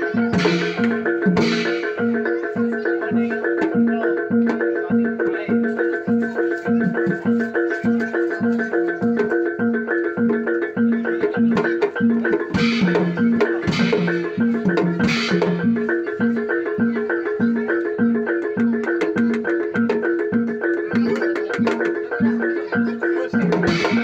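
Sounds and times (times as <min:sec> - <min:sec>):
gamelan metallophones playing: 0:00.0 - 0:24.0.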